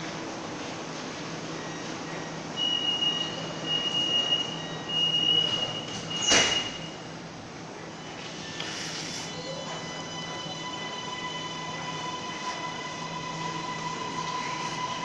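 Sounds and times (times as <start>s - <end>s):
high steady warning beep: 2.6s - 6.9s
low station hum: 7.0s - 15.0s.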